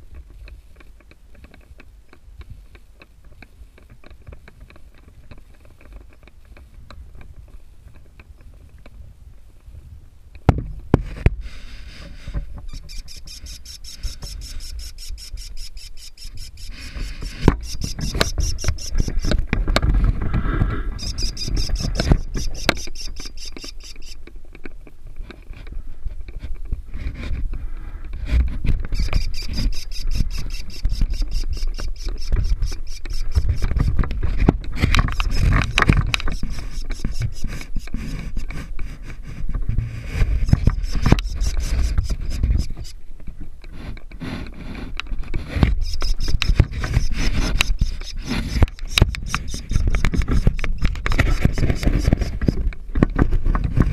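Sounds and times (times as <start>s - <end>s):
low rumble of handling and wind: 0.0s - 53.9s
camera knocking on wooden box: 12.4s - 20.2s, 21.0s - 24.2s, 28.4s - 38.5s, 40.2s - 42.9s, 45.5s - 53.9s
high shrill rasping: 12.7s - 19.4s, 20.9s - 24.2s, 28.9s - 33.9s, 45.7s - 52.5s.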